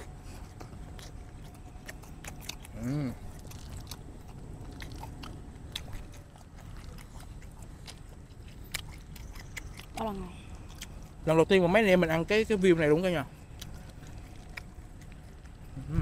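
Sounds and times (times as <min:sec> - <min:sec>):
wet chewing: 0:00.0 - 0:16.0
person humming mmm: 0:02.7 - 0:03.4, 0:15.8 - 0:16.0.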